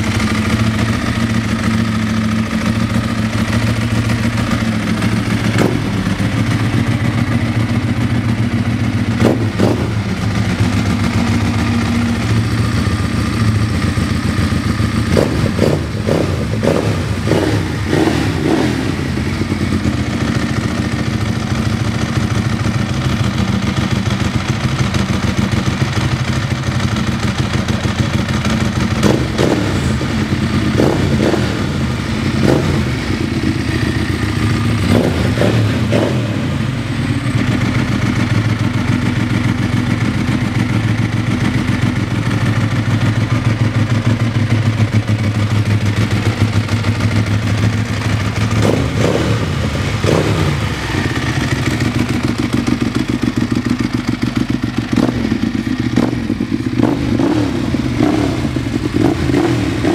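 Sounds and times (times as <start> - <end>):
motorcycle engine idling and revving: 0.0 - 59.9.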